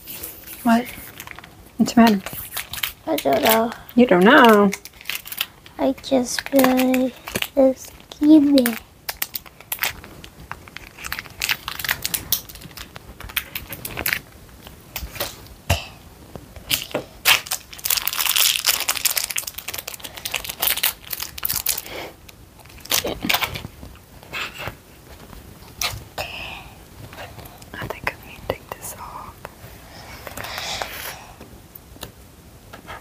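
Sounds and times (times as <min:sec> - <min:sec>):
plastic wrappers crinkling: 0:00.4 - 0:15.5, 0:16.6 - 0:26.2.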